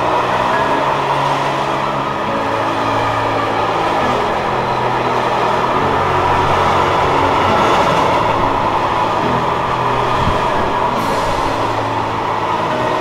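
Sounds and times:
freight train wheels on rails: 0.0s - 13.0s.

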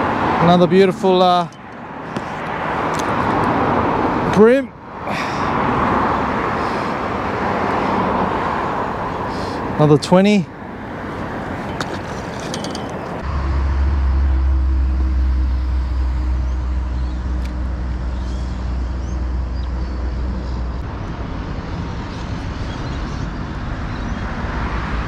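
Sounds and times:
road traffic: 0.0s - 25.0s
vehicle engine passing: 5.6s - 22.4s.

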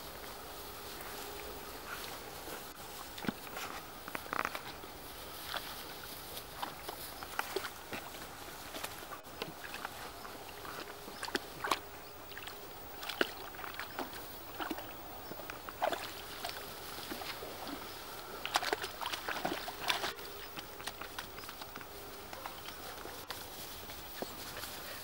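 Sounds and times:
rustling through grass: 0.0s - 25.0s
puppies splashing in water: 5.1s - 23.6s.

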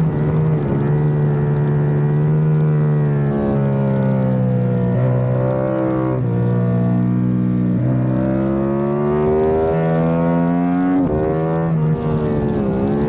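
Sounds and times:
motorcycle engine accelerating: 0.0s - 13.0s.

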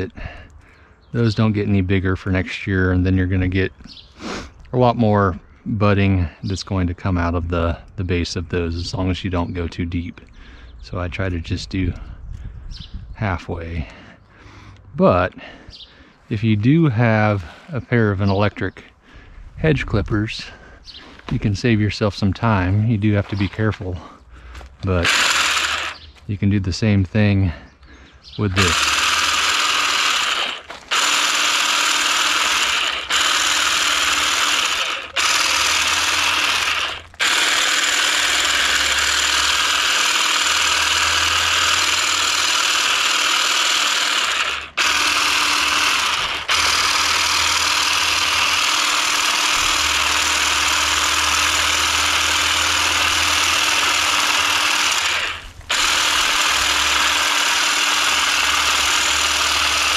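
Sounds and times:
electric hedge shears buzzing: 24.6s - 26.2s, 28.5s - 59.9s.

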